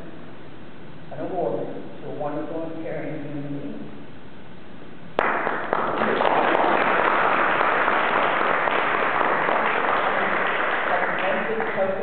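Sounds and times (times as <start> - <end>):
audience applauding: 5.2 - 12.0.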